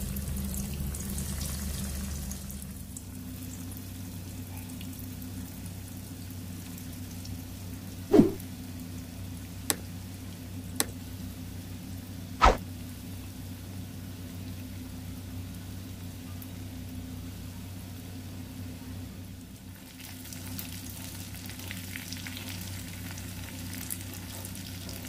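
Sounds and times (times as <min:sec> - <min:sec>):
chicken sizzling in hot oil: 0:00.0 - 0:04.2, 0:19.3 - 0:25.0.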